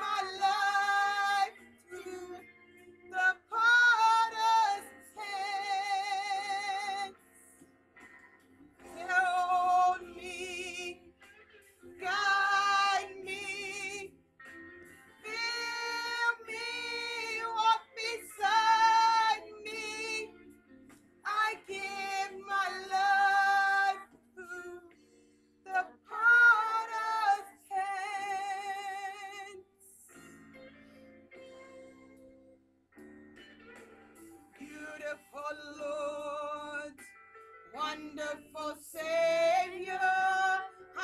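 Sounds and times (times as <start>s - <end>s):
woman singing worship song: 0.0s - 7.2s, 8.8s - 11.1s, 12.0s - 14.1s, 15.2s - 20.4s, 21.2s - 25.0s, 25.6s - 30.1s, 34.6s - 37.1s, 37.7s - 41.0s
soft steady accompaniment: 0.0s - 41.0s.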